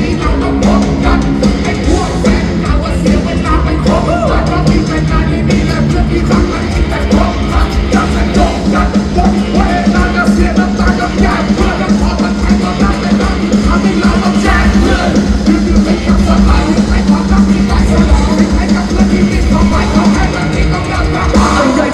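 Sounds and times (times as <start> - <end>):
amplified singing and rapping: 0.0 - 21.9
live rock band playing: 0.0 - 21.9.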